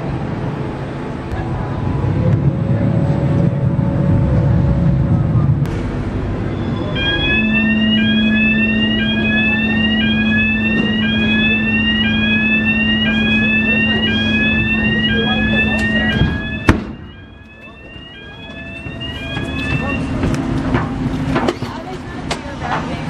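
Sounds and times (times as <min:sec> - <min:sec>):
ferry engine hum: 0:00.0 - 0:23.0
rising electronic warning tone: 0:06.3 - 0:20.5.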